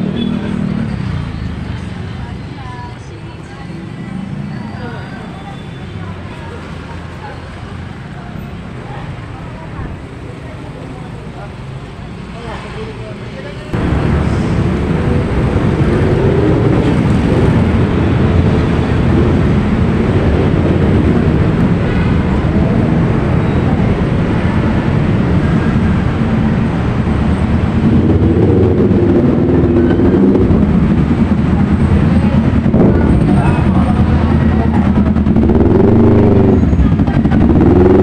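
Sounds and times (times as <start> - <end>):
faint voices: 0.0 - 18.3, 19.1 - 38.0
low rumble of street traffic: 0.0 - 38.0.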